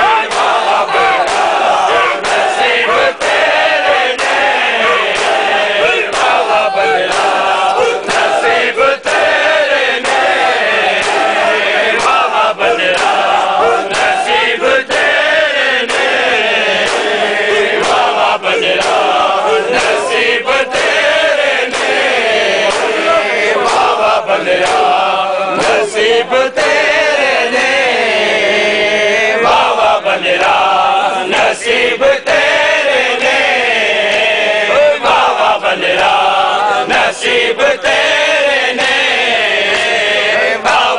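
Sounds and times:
crowd of men chanting: 0.0s - 40.9s
hands slapping bare chests: 0.2s - 9.3s, 10.0s - 11.4s, 12.9s - 15.2s, 15.9s - 16.2s, 16.8s - 17.2s, 17.8s - 20.1s, 21.7s - 22.1s, 22.7s - 23.1s, 24.6s - 25.0s.

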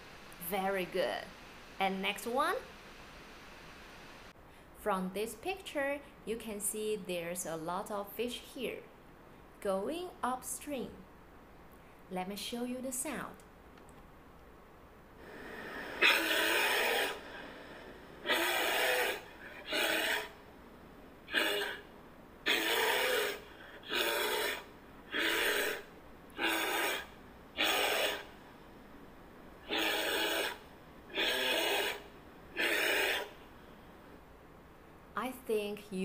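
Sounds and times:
bear huffing and grunting: 15.2s - 20.4s, 21.2s - 25.8s, 26.4s - 28.3s, 29.6s - 33.3s.

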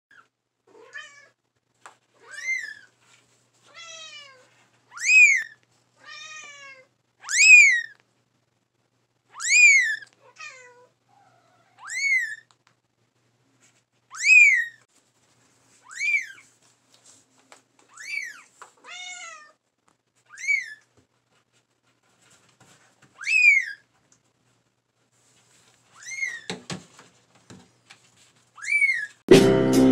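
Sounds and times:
kitten meowing high-pitched: 3.8s - 8.0s, 9.3s - 10.8s, 11.8s - 12.4s, 14.1s - 14.8s, 20.3s - 20.8s.

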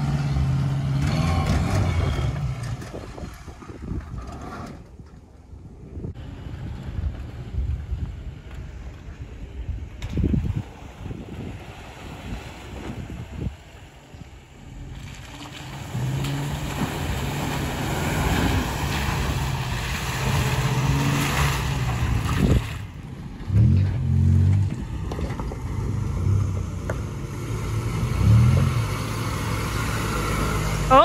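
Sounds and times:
truck engine revving under load: 0.0s - 4.8s, 14.5s - 31.0s.

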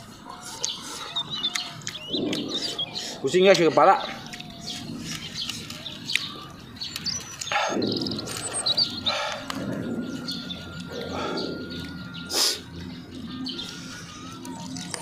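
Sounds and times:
small birds chirping: 0.0s - 15.0s
grilled chicken tearing: 0.3s - 8.8s.

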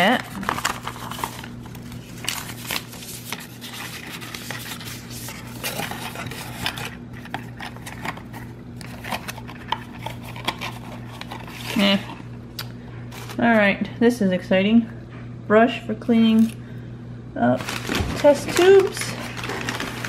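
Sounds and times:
steady low hum: 0.0s - 20.0s
paper rustling: 0.1s - 12.2s, 17.6s - 20.0s.

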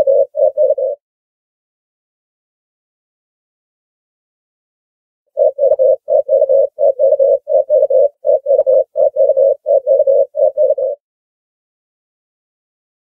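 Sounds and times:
dove cooing: 0.0s - 1.0s, 5.4s - 11.0s.

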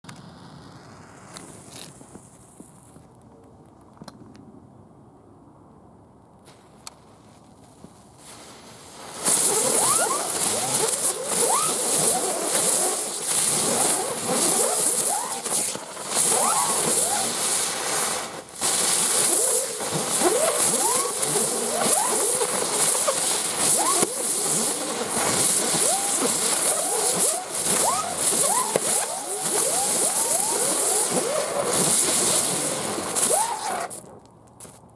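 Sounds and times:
fireworks fizzing: 0.1s - 3.2s, 6.4s - 34.2s
rising whistles: 9.2s - 18.0s, 25.5s - 32.5s.

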